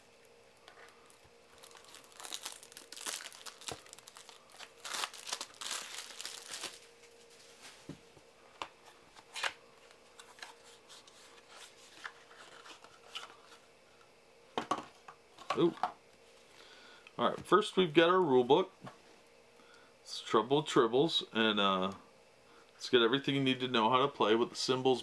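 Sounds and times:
wrapping crinkling and tearing: 0.6s - 7.1s.

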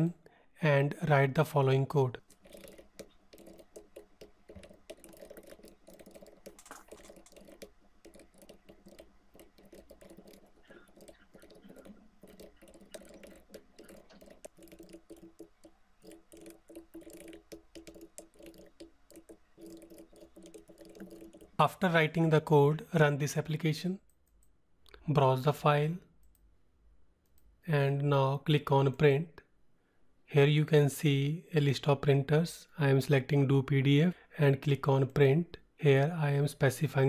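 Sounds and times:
typing on computer keyboard: 2.2s - 22.3s.

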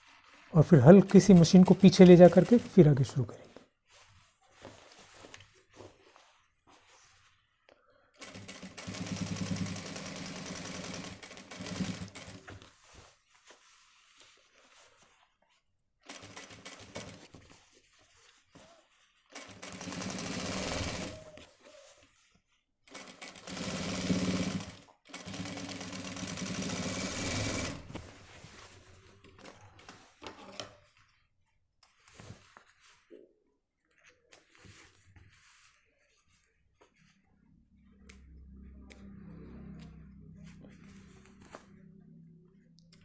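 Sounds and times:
fabric handling sounds: 0.0s - 43.0s
sewing machine stitching: 0.8s - 3.0s, 8.2s - 12.5s, 16.0s - 17.3s, 19.3s - 21.3s, 22.9s - 28.0s.

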